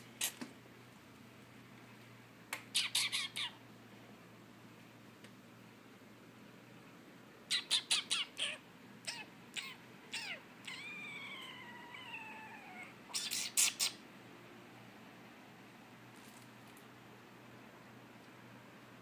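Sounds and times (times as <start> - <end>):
small dog yipping and whining: 7.5 - 14.0.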